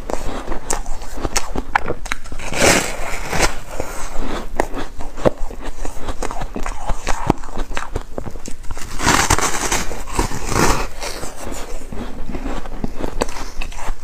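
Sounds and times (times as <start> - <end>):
ice crunching while chewed: 0.0 - 14.0.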